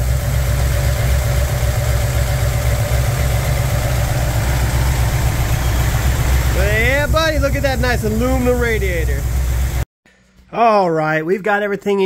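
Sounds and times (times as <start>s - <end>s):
engine idling: 0.0s - 9.8s.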